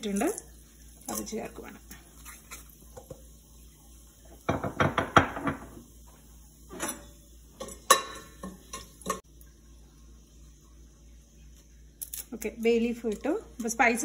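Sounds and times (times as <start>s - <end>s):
spices clinking in a metal pot: 6.8s - 9.2s.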